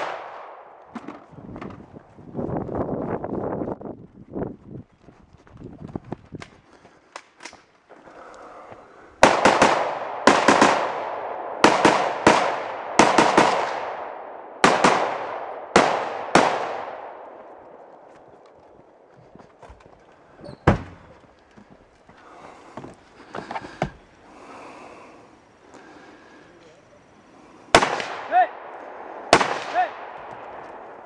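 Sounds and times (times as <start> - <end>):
rifle gunshots: 0.0 - 0.8, 9.2 - 17.5, 27.7 - 30.9.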